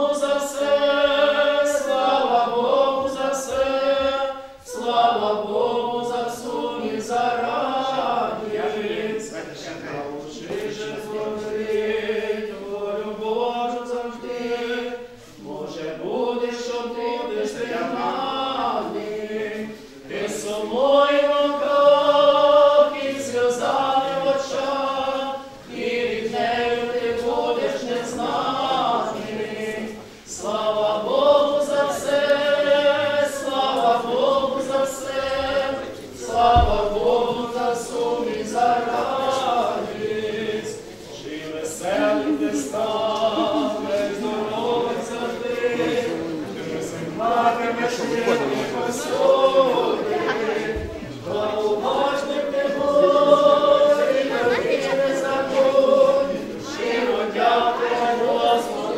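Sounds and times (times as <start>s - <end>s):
group singing a hymn: 0.0s - 58.9s.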